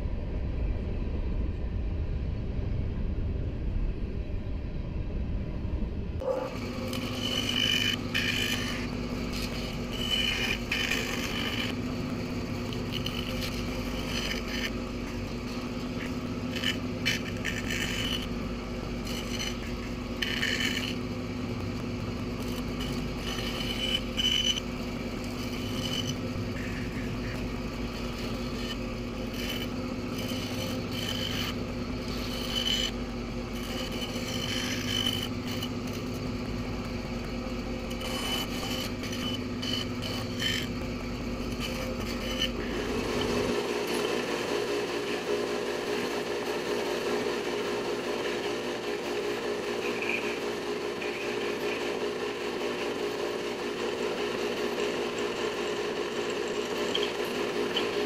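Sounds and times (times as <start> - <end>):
bandsaw motor hum: 6.2 - 58.0
bandsaw blade rasping through wood: 6.4 - 21.1, 22.2 - 45.4.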